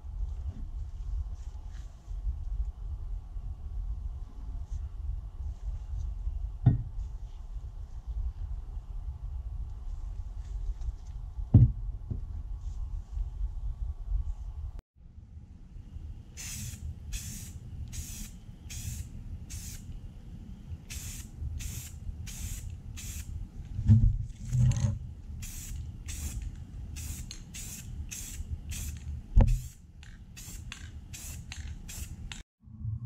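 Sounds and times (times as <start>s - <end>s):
spray paint can hissing: 16.4s - 19.9s, 20.9s - 23.3s, 25.4s - 32.4s.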